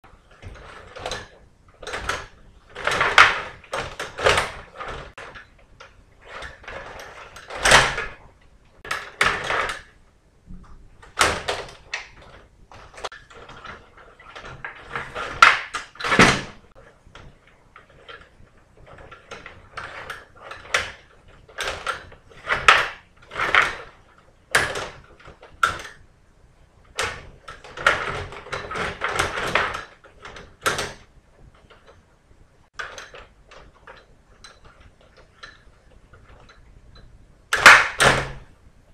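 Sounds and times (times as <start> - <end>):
metal rods sliding and rattling: 0.0 - 10.1, 10.9 - 38.5
plastic players knocking puck: 10.5 - 18.2, 37.5 - 38.5.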